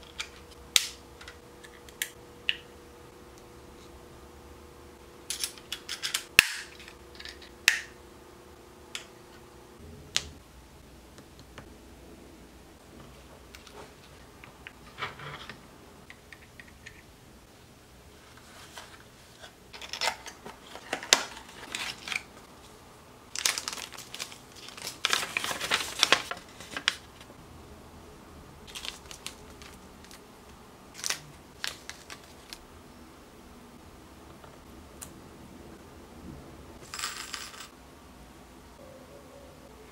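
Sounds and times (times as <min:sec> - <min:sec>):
plastic bag crinkling: 0:23.3 - 0:27.2, 0:28.7 - 0:30.2, 0:30.9 - 0:32.6.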